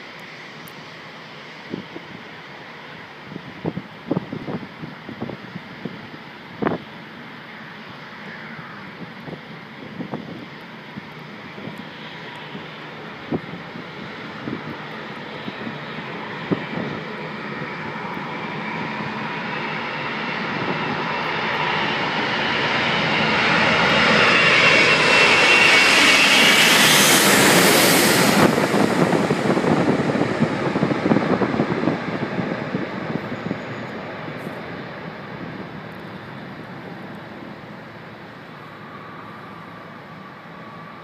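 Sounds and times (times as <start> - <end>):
high engine whine: 0.0 - 41.0
jet engines roaring overhead: 0.0 - 41.0
jet swoosh passing overhead: 13.7 - 36.4.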